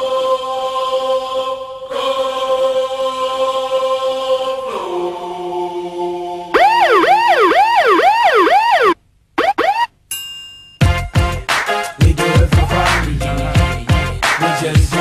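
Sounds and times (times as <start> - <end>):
synthesized held chords: 6.6 - 9.9
warbling siren-like tone: 6.6 - 9.9.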